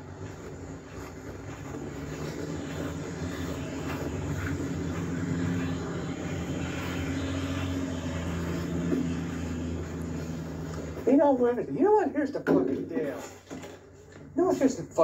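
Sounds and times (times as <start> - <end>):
motor drone with low hum: 0.0 - 11.8.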